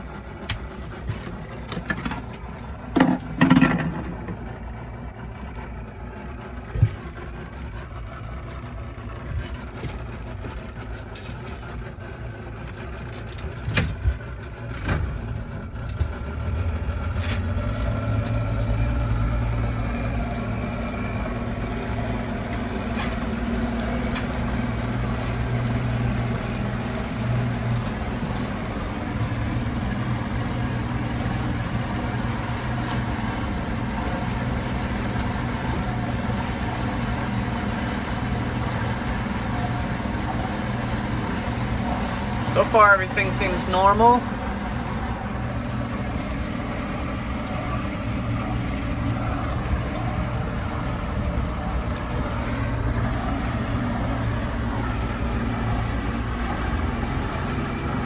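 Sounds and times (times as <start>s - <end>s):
outboard motor idling: 0.0s - 58.0s.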